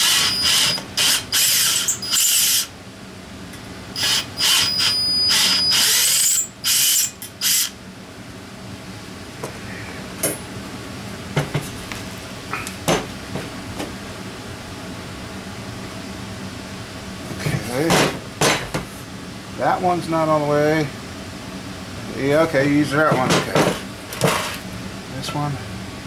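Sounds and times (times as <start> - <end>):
power drill whining: 0.0 - 2.7, 4.0 - 7.7.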